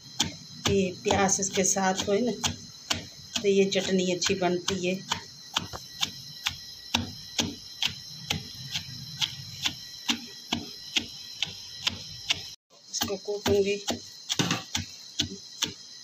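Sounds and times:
pestle pounding in stone mortar: 0.1 - 15.8.

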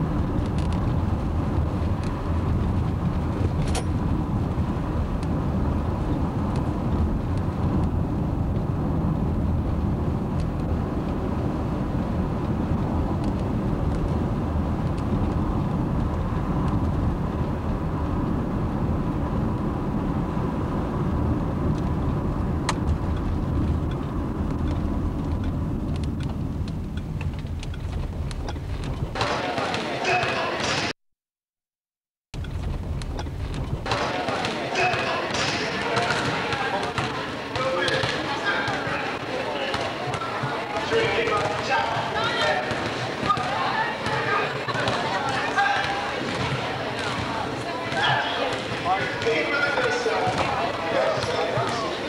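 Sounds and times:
car cabin engine and tyre noise: 0.0 - 29.2.

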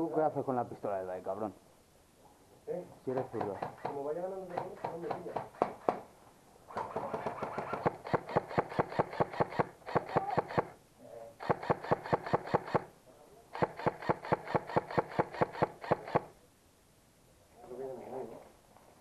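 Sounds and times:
airsoft gun firing full auto: 6.8 - 10.8, 11.4 - 12.9, 13.6 - 16.3.

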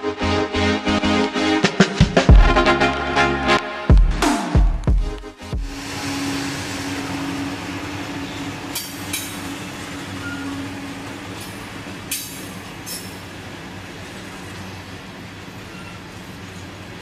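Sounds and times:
diesel locomotive hum: 5.4 - 17.0
train cars rolling: 5.8 - 17.0
sharp metallic wheel sounds: 8.2 - 10.5.

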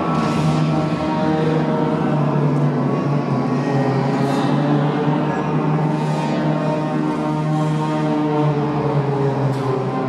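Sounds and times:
low held drone tone: 0.0 - 10.0.

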